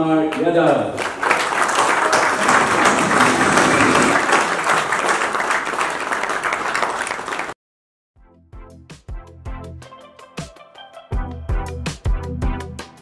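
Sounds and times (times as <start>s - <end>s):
crowd applauding: 0.3s - 7.6s.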